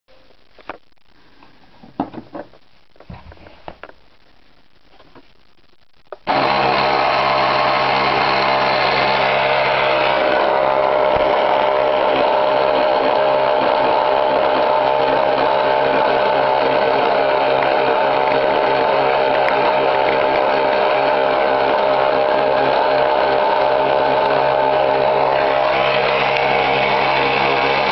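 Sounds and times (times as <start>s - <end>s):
small electric motor whine: 6.3s - 27.9s.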